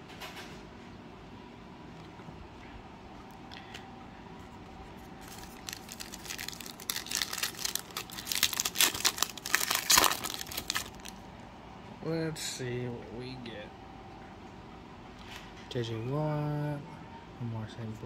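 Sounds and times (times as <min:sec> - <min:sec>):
foil wrapper crinkling and tearing: 0:05.2 - 0:11.2.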